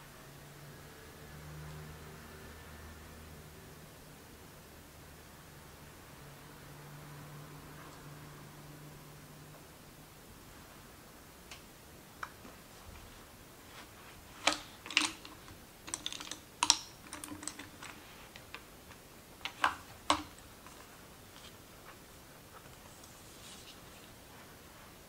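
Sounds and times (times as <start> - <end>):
make-up brushes clicking and tapping: 13.8 - 22.0.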